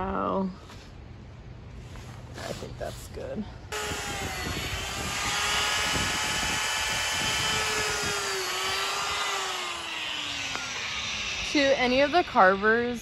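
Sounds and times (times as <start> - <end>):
die grinder whining: 3.7 - 13.0.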